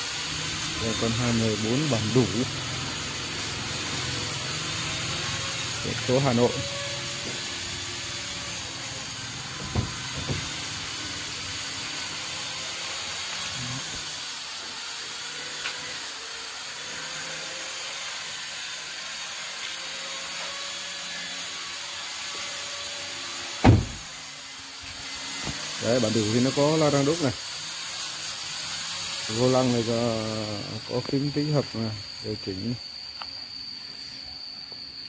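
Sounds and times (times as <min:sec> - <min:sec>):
car door shutting: 0:09.6 - 0:10.4, 0:23.6 - 0:24.0
steady hiss: 0:24.8 - 0:35.0.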